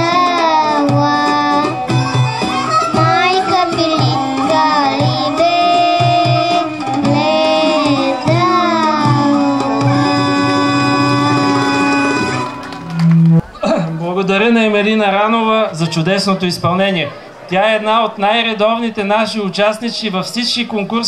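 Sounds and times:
girl singing into a microphone: 0.0 - 12.3
steady drum beat: 0.0 - 13.4
instrumental accompaniment: 0.0 - 13.6.

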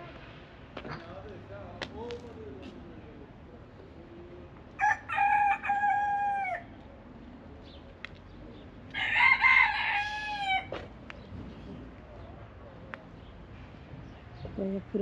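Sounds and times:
rooster crowing: 4.8 - 6.7, 8.9 - 10.8.

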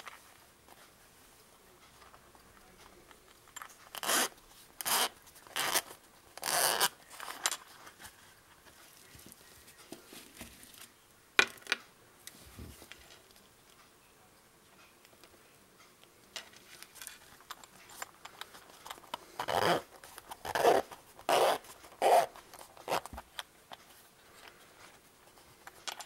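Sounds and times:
zipper pulled open: 4.0 - 6.9, 19.4 - 23.1.

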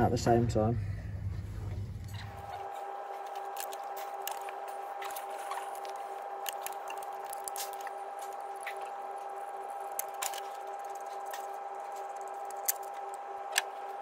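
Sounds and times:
steady background hum: 0.0 - 14.0
metal parts clicking: 9.8 - 13.7.

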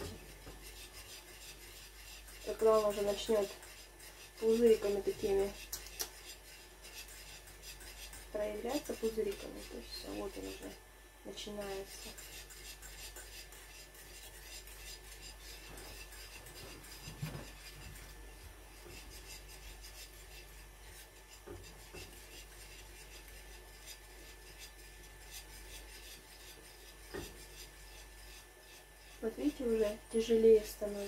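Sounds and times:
spoon scraping a saucepan: 0.0 - 10.7, 11.8 - 18.2.

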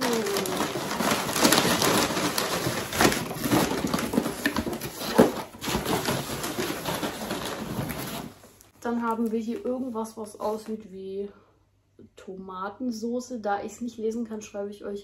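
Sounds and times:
packaging rustling and clattering: 0.0 - 8.7.

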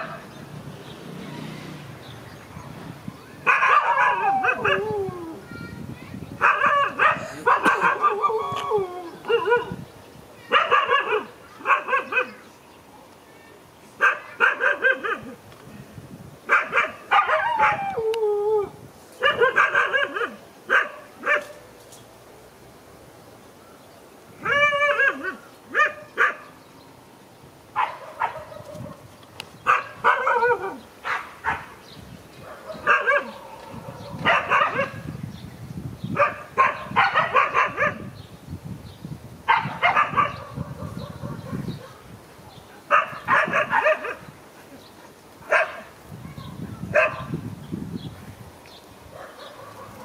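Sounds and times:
dog barking: 3.4 - 4.9, 6.4 - 8.3, 10.5 - 12.4, 14.0 - 15.4, 16.5 - 17.9, 19.2 - 21.6, 24.5 - 26.5, 27.8 - 29.0, 29.7 - 31.8, 32.4 - 35.0, 36.2 - 38.1, 39.5 - 42.1, 42.9 - 44.2, 45.5 - 47.4, 49.1 - 50.0.

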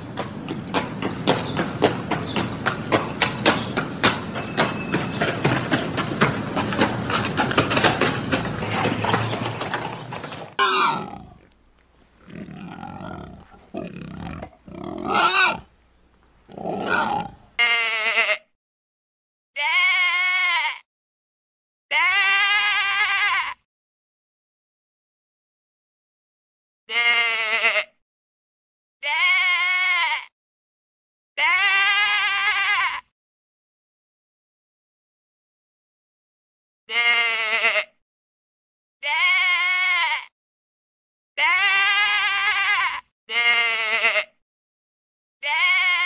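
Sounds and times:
pigs grunting: 8.5 - 11.6, 12.2 - 15.7, 16.5 - 17.5
sheep bleating: 12.2 - 15.7, 16.5 - 18.5, 19.6 - 20.8, 21.9 - 23.6, 26.9 - 27.9, 29.0 - 30.3, 31.4 - 33.1, 36.9 - 37.9, 39.0 - 40.3, 41.4 - 44.3, 45.4 - 46.0.

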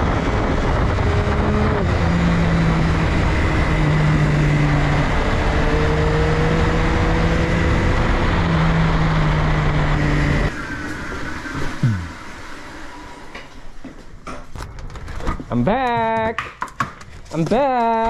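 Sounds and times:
wind rush: 0.0 - 10.6
motorcycle engine cruising: 0.0 - 10.8
short falling whine: 7.8 - 13.4.

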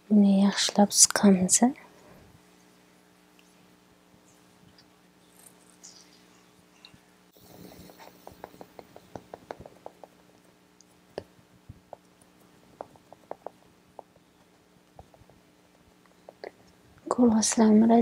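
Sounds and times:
sponge tapping on face: 7.7 - 10.2, 12.8 - 16.5.

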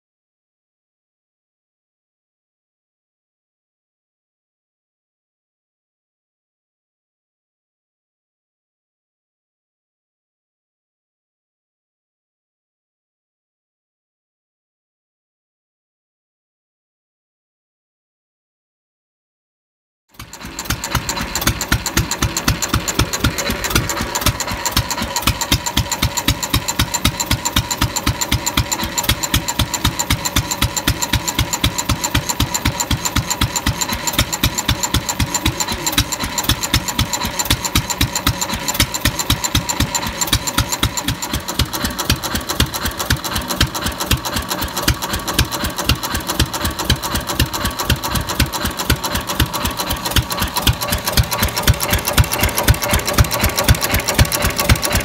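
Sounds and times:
stationary engine clattering: 20.2 - 55.0.

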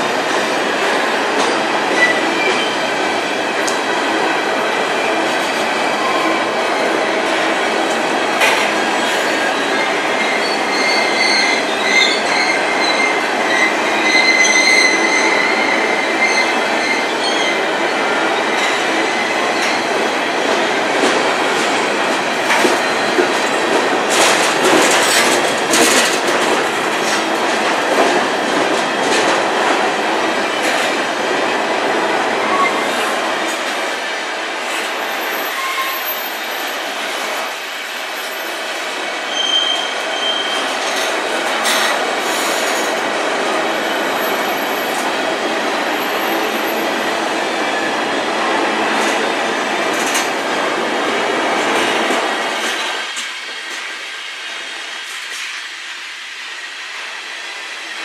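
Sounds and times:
train wheels rumbling on rail: 0.0 - 58.0
high wheel squeal: 9.0 - 17.6, 35.0 - 36.7, 39.3 - 41.1.

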